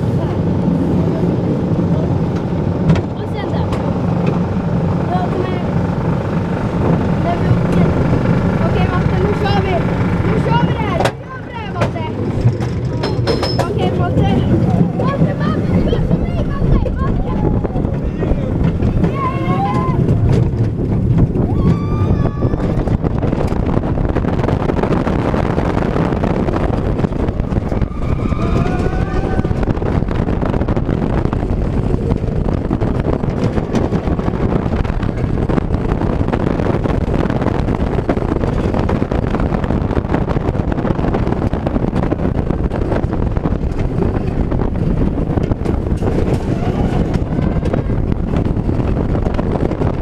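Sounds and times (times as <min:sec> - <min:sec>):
roller coaster rumbling on track: 0:00.0 - 0:50.0
wind rushing on microphone: 0:00.0 - 0:50.0
riders yelling: 0:13.9 - 0:20.3, 0:27.7 - 0:30.0, 0:46.3 - 0:48.1.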